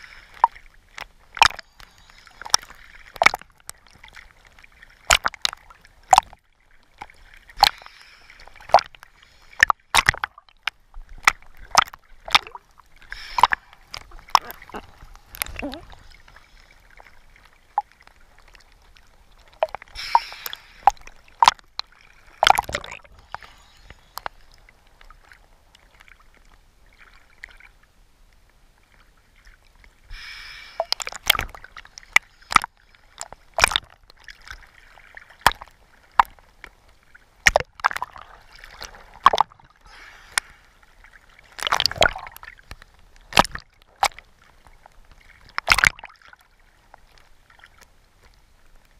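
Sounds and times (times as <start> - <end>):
underwater clicks and crackles: 0.0 - 48.9
bubbling gurgling water: 2.4 - 4.2, 5.0 - 7.8, 9.6 - 16.3, 19.3 - 24.3, 30.8 - 34.6, 37.4 - 39.8, 41.5 - 42.6, 45.4 - 46.4.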